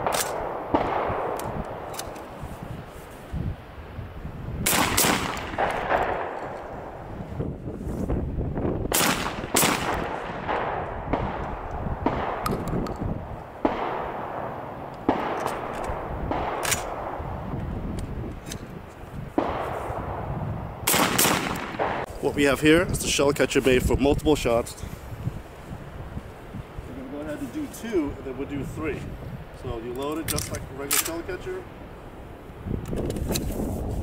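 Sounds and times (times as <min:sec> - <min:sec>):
shotgun shots: 0:00.0 - 0:01.9, 0:04.6 - 0:06.8, 0:08.9 - 0:12.6, 0:13.6 - 0:17.2, 0:19.4 - 0:22.1
background noise: 0:00.0 - 0:34.0.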